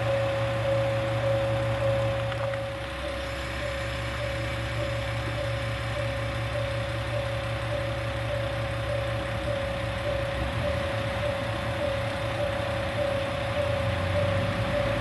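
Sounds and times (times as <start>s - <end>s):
diesel railcars idling: 0.0s - 15.0s
pulsing high tone: 0.0s - 15.0s.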